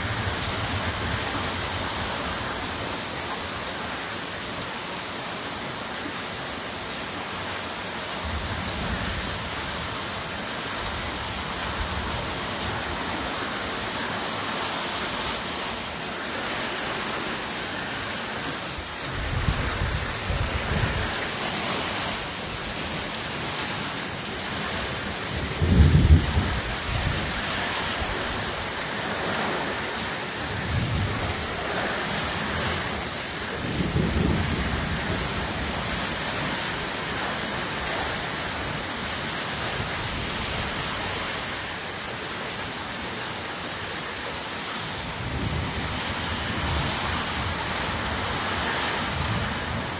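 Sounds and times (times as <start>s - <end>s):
heavy rain falling: 0.0s - 49.9s
thunder rumbling: 25.2s - 27.4s.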